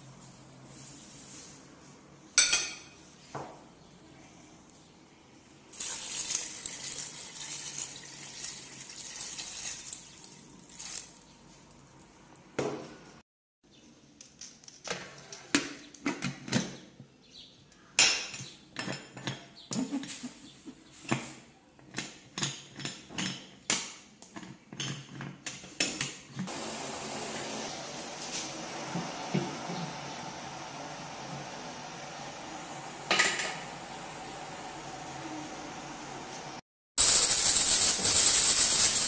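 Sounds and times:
water pouring into metal pot: 0:05.7 - 0:11.0
gas burner hissing: 0:26.5 - 0:39.0.

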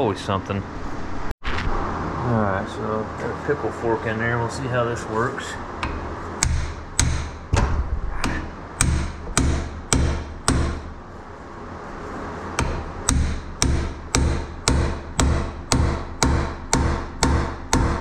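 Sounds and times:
hammer striking metal: 0:05.8 - 0:11.0, 0:12.6 - 0:18.0.

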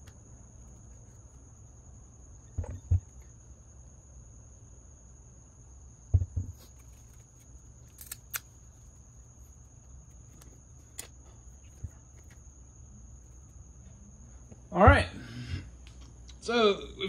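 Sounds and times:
faint steady hum: 0:00.0 - 0:17.0
heavy metal part thumping on workbench: 0:06.1 - 0:06.7.

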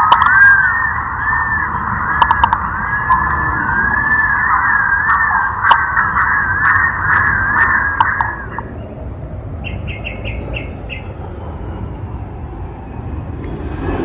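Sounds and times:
pigeon warbling whistle: 0:00.0 - 0:08.9.

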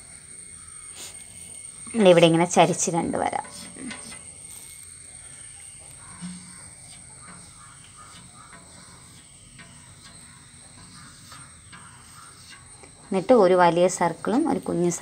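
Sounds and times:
steady high-pitched whine: 0:00.0 - 0:15.0
chalk scratching on blackboard: 0:10.8 - 0:12.6.

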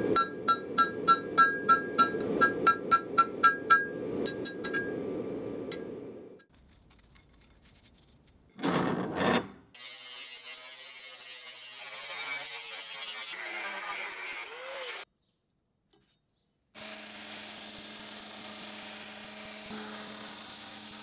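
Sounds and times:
hammer striking steel on anvil: 0:00.0 - 0:05.1
loud scrape: 0:08.6 - 0:09.7
angle grinder hissing: 0:16.8 - 0:21.0.

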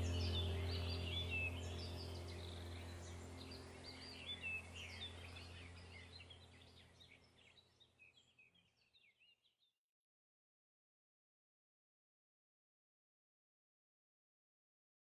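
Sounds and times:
low steady background tone: 0:00.0 - 0:09.1
small birds chirping: 0:00.0 - 0:09.7.

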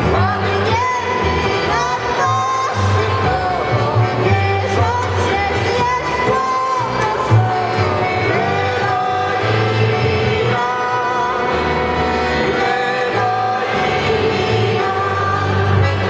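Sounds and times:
accordion: 0:00.0 - 0:16.0
double bass line: 0:00.0 - 0:16.0
people singing: 0:00.0 - 0:16.0
violin: 0:00.0 - 0:16.0.

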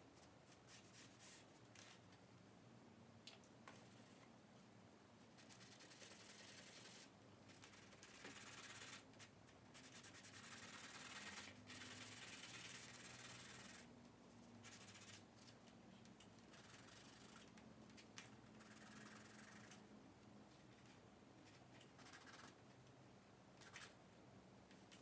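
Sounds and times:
charcoal scratching on paper: 0:00.5 - 0:01.5, 0:05.4 - 0:13.9, 0:14.6 - 0:15.2, 0:16.5 - 0:17.5, 0:18.6 - 0:19.8, 0:22.0 - 0:22.6.

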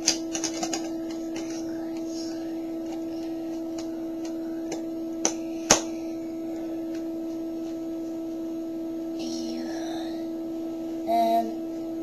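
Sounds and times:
plastic parts clicking: 0:00.0 - 0:01.2
steady hum: 0:00.0 - 0:12.0.

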